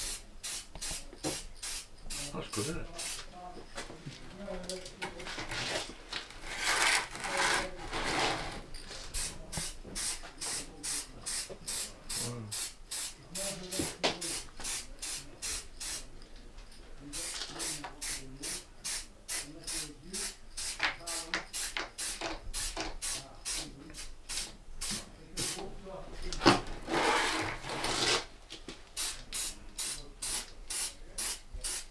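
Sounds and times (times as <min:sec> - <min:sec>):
spray paint can hissing: 0:00.0 - 0:02.3, 0:02.9 - 0:03.2, 0:09.2 - 0:13.2, 0:13.8 - 0:16.0, 0:17.1 - 0:25.6, 0:29.0 - 0:31.9.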